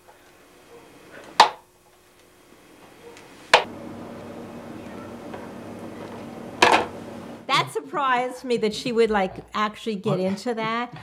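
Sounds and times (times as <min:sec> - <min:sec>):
faint hum: 0:03.6 - 0:07.5
tape hiss: 0:03.6 - 0:07.6.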